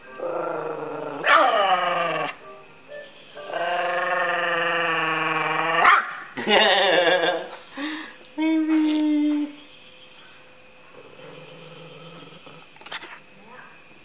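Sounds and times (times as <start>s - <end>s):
dog howling: 0.2s - 2.4s.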